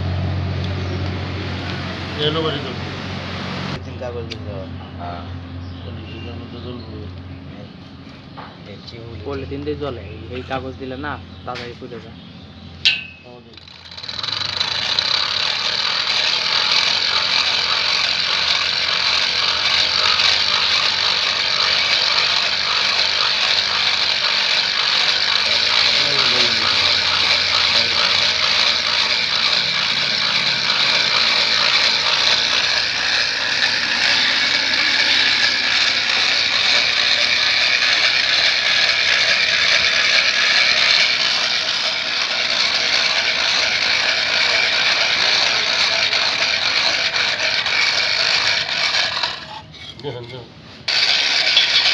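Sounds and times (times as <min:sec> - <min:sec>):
hand-cranked blower whirring: 0:12.9 - 0:51.9.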